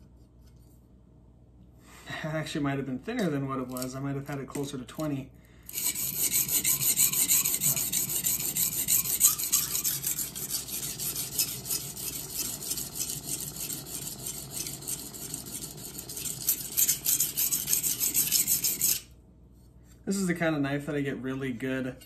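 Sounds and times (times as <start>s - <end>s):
knife scraping on whetstone: 5.7s - 20.1s.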